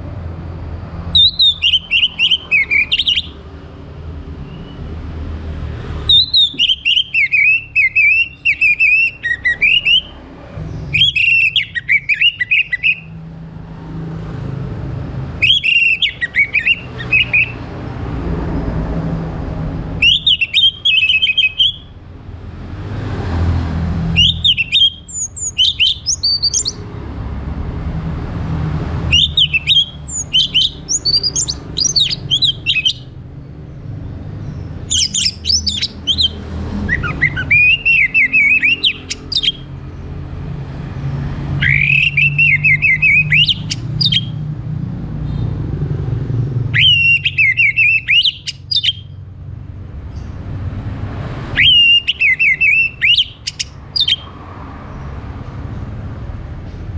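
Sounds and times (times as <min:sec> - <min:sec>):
bird singing whistles and trills: 0:01.1 - 0:03.4, 0:04.4 - 0:04.9, 0:06.0 - 0:13.2, 0:15.4 - 0:17.7, 0:20.0 - 0:22.0, 0:24.1 - 0:26.8, 0:29.1 - 0:33.2, 0:34.4 - 0:39.7, 0:41.6 - 0:44.5, 0:46.7 - 0:49.2, 0:51.5 - 0:54.4.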